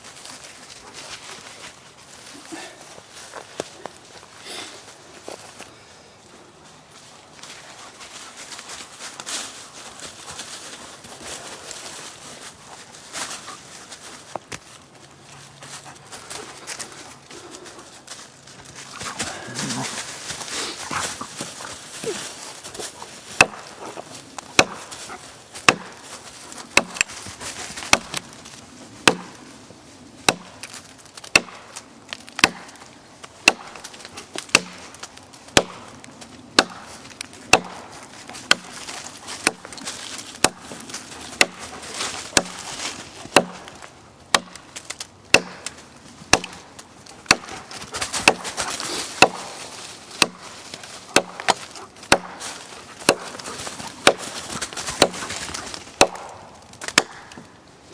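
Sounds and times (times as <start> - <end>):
wood chips splitting: 18.5 - 29.4, 30.2 - 57.6
hatchet chopping wood: 23.4 - 23.8, 24.4 - 24.9, 25.6 - 26.0, 26.7 - 27.2, 27.8 - 28.2, 29.0 - 29.4, 30.2 - 31.8, 32.4 - 39.8, 40.4 - 42.6, 43.3 - 49.6, 50.2 - 50.5, 51.1 - 57.5.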